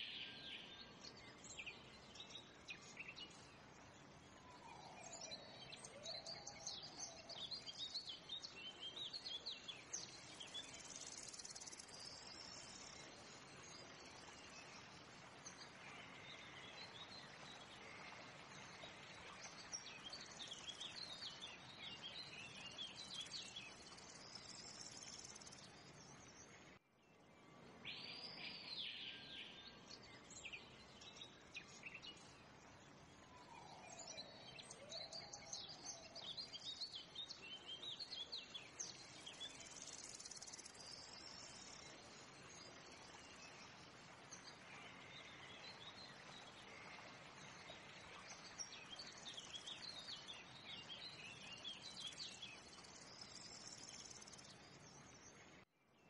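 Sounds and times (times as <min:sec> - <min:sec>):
insect hiss: 0:10.0 - 0:15.2, 0:38.8 - 0:42.8, 0:52.8 - 0:54.6.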